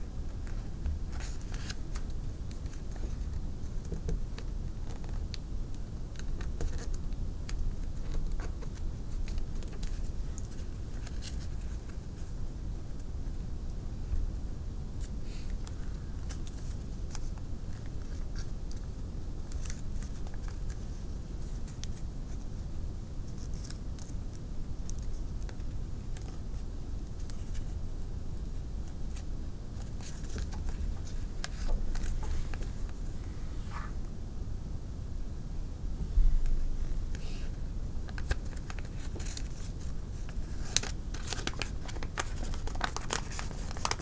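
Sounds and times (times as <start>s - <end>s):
steady low rumble: 0.0s - 43.2s
paper crinkling and creasing: 0.4s - 5.3s, 6.1s - 12.4s, 15.0s - 22.4s, 28.8s - 33.1s, 38.0s - 44.0s.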